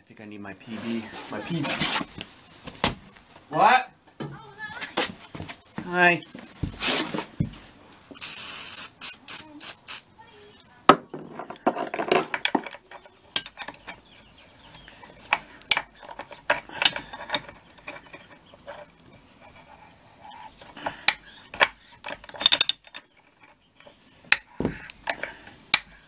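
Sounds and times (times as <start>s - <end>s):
aerosol spray hiss: 8.2s - 10.0s
wrench clinking on metal nut: 11.9s - 14.3s, 15.3s - 18.9s, 20.8s - 26.0s.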